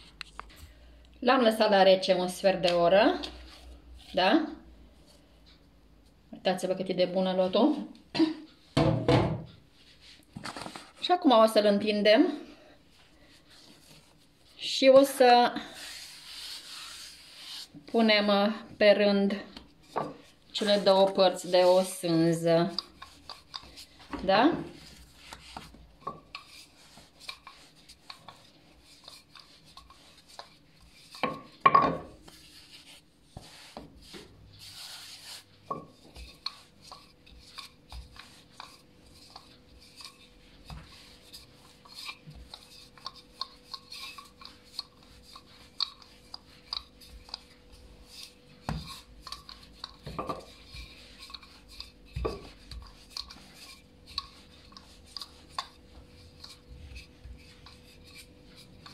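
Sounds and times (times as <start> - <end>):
hands kneading dough: 9.6 - 58.9
rolling pin rolling dough: 13.0 - 58.9.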